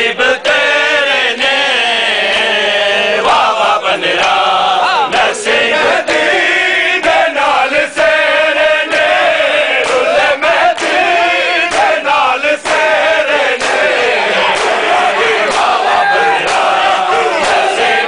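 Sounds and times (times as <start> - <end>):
men chanting in unison: 0.0 - 18.0
hands slapping chests: 9.8 - 10.1, 10.7 - 11.0, 11.7 - 12.0, 12.6 - 13.0, 13.6 - 17.7.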